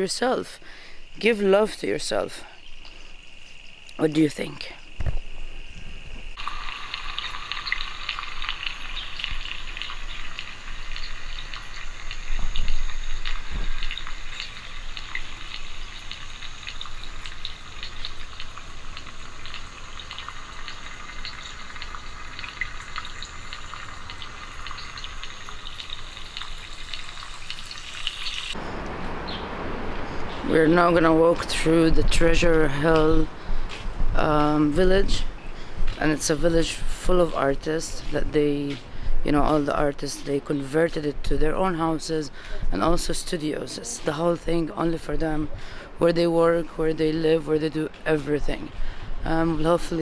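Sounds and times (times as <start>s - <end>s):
insects chirring: 0.0s - 38.8s.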